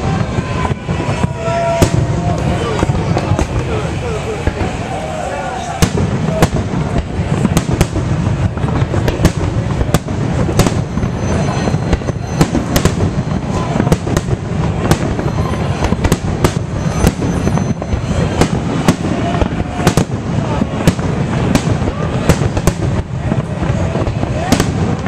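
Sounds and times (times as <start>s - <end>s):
fireworks shells bursting: 5.8s - 25.0s.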